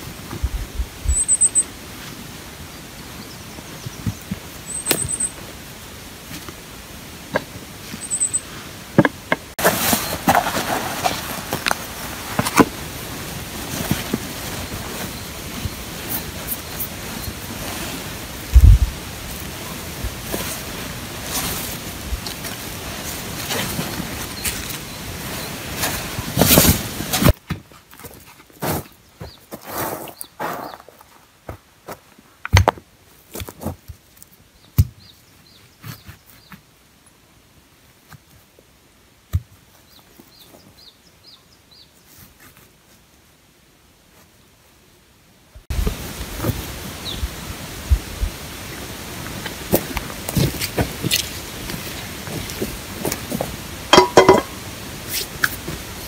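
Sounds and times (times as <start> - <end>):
stones knocking on ground: 9.0 - 12.7, 32.5 - 32.8, 53.3 - 54.6
steady rushing noise: 10.7 - 23.3.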